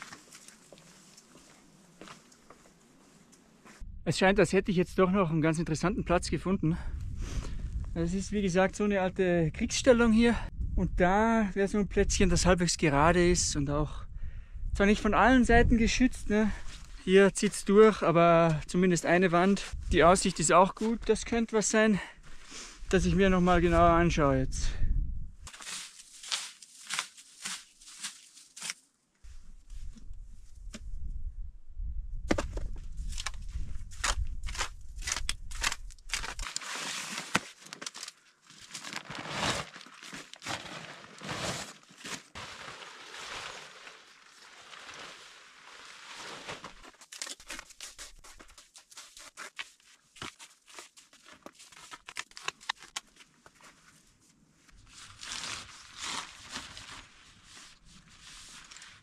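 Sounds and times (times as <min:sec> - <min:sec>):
tent fabric crinkling and rustling: 0:00.0 - 0:03.8, 0:25.5 - 0:29.8, 0:33.1 - 0:59.0
wind rumble on microphone: 0:06.8 - 0:16.4, 0:19.7 - 0:20.2, 0:22.9 - 0:25.4, 0:29.3 - 0:36.1.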